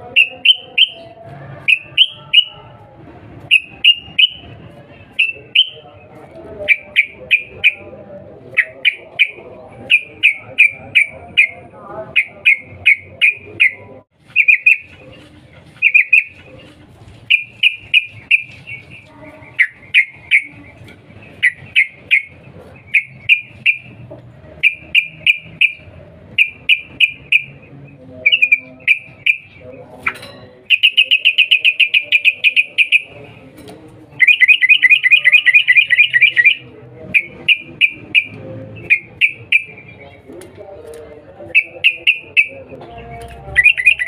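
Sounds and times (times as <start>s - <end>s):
bird giving sharp chipping calls: 8.6s - 15.0s, 15.8s - 16.5s, 17.2s - 24.0s, 28.2s - 33.4s, 34.2s - 40.3s.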